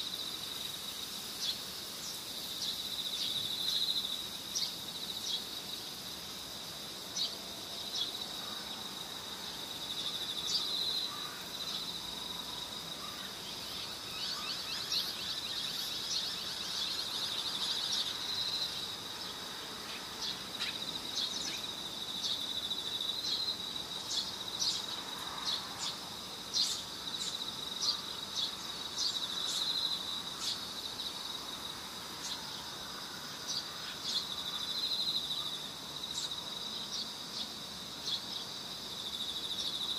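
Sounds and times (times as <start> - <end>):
insects trilling: 0.0 - 39.9.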